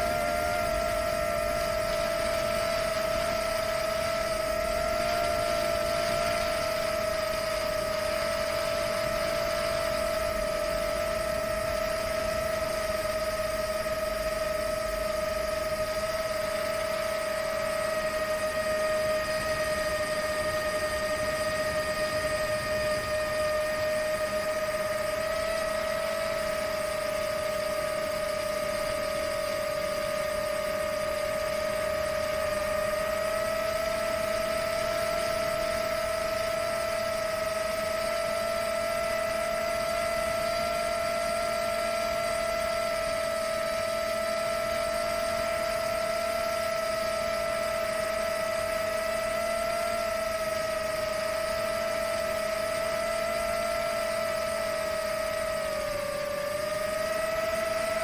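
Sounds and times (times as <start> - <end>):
wind hiss: 0.0 - 42.4
drone motors whining: 0.0 - 58.0.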